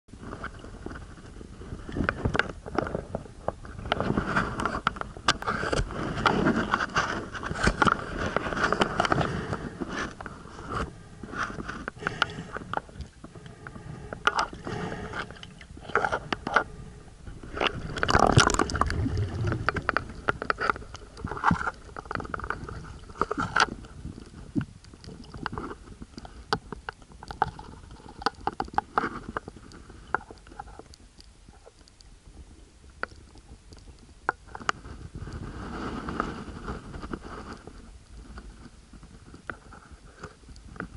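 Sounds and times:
low rumble: 7.7 - 23.2.

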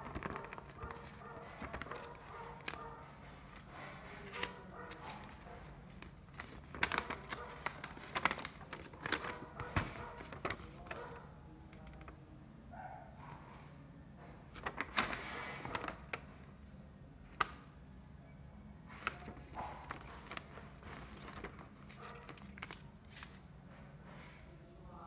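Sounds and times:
paper rustling and crinkling: 0.0 - 12.2, 14.5 - 16.5, 18.9 - 23.5.

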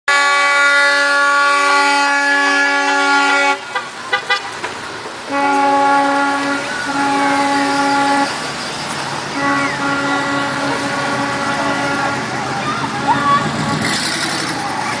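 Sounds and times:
car horn blasts: 0.1 - 4.6, 5.3 - 8.4, 9.3 - 12.3.

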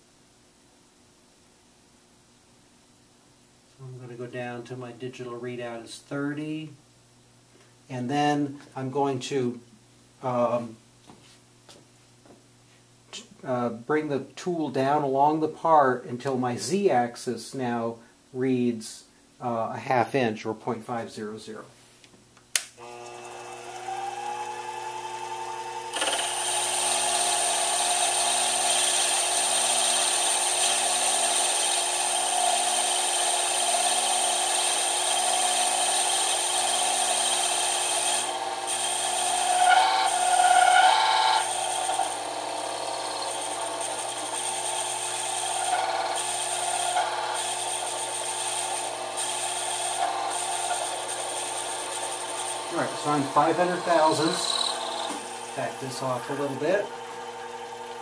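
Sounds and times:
switch click: 22.5 - 22.8
lathe motor whine: 22.8 - 58.0
lathe tool cutting: 22.8 - 58.0.

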